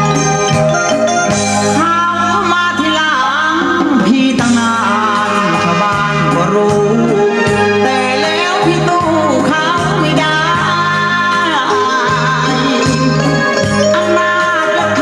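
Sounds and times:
repeating bass line: 0.0 - 2.7, 3.8 - 15.0
person singing: 1.7 - 15.0.

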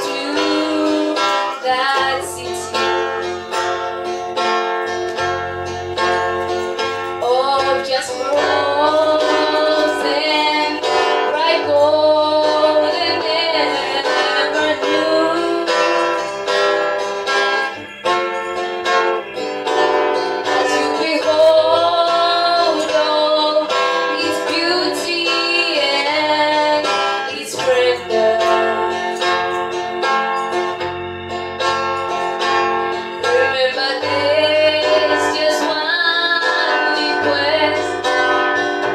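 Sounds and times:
woman and girl singing: 0.0 - 2.9, 7.2 - 16.2, 20.5 - 29.5, 33.2 - 38.6
strummed acoustic guitar: 0.0 - 38.9.

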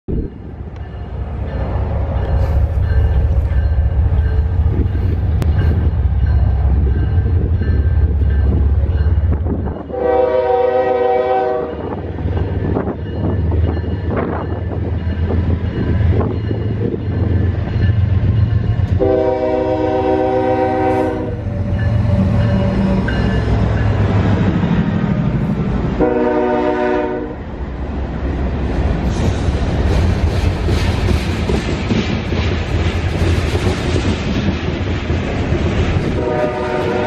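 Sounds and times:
diesel locomotive engines rumbling: 0.1 - 37.0
train air horn blasts: 9.9 - 12.0, 19.0 - 23.2, 26.0 - 27.4, 36.1 - 37.0.

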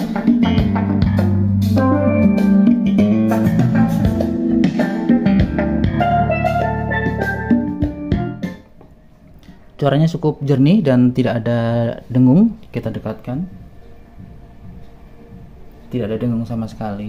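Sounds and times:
guitar bass and drums music: 0.0 - 8.8.

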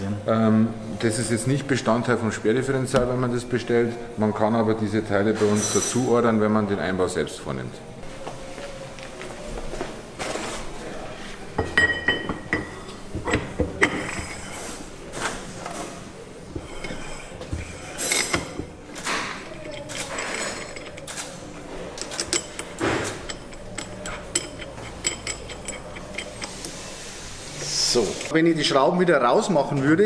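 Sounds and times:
metal parts clinking: 16.6 - 26.7.

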